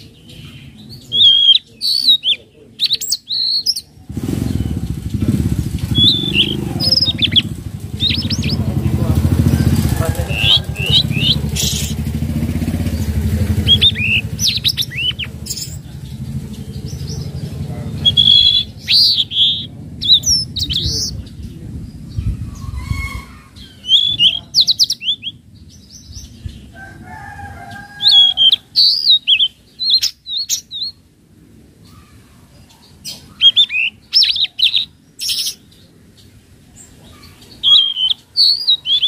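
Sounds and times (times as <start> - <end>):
bird chirping and whistling: 1.1 - 21.4, 22.2 - 25.4, 28.0 - 31.0, 33.1 - 35.6, 37.6 - 39.0
low engine rumble: 2.3 - 34.1.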